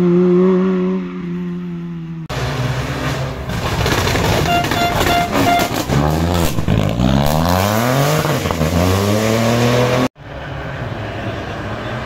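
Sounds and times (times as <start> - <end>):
rally car engine revving: 2.3 - 10.1.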